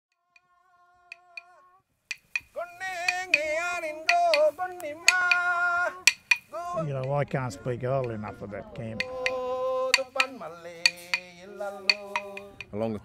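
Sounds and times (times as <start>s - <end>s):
clapsticks striking: 2.1s - 8.4s, 9.0s - 12.8s
person singing held notes: 2.5s - 12.8s.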